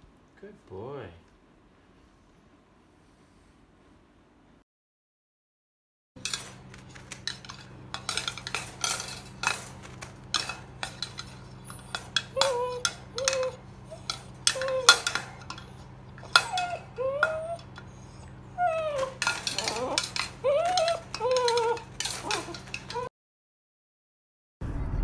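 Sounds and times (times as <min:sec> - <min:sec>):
food bowl banging on wire crate: 0:06.2 - 0:17.4, 0:19.0 - 0:23.1
puppy whining: 0:06.3 - 0:23.1.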